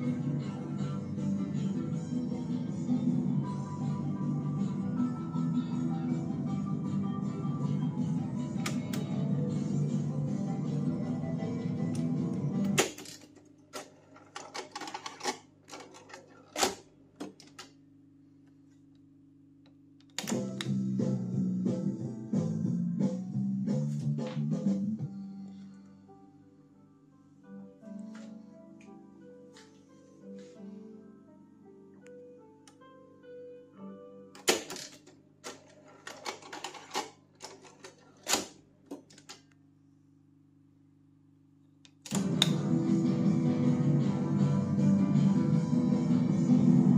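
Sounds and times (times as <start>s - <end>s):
faint music: 0.0s - 46.9s
cassette deck mechanism clicking: 8.7s - 9.1s, 20.0s - 20.8s.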